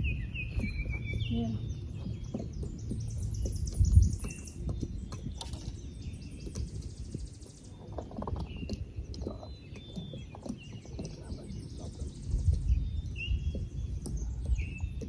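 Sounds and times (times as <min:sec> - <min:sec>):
steady low rumble: 0:00.0 - 0:07.8, 0:11.1 - 0:15.0
birds chirping and trilling: 0:00.0 - 0:15.0.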